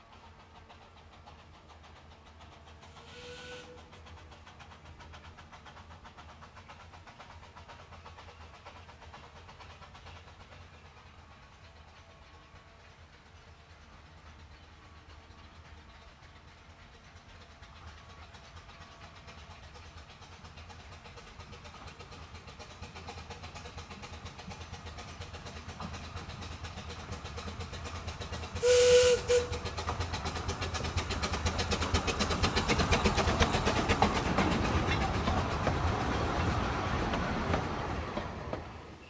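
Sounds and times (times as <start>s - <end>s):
steam locomotive running: 0.0s - 39.0s
steam whistle blast: 3.0s - 3.8s, 28.6s - 29.6s.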